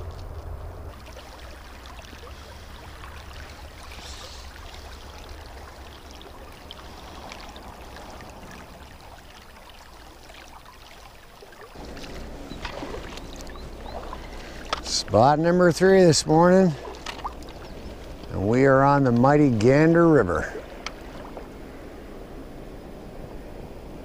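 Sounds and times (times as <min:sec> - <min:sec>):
low rumble: 0:00.0 - 0:01.8.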